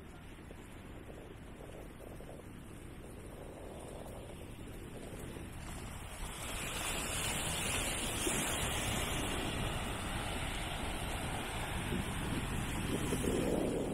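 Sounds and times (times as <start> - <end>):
wind buffeting microphone: 0.0 - 13.9
sea water lapping at shore: 3.7 - 13.9.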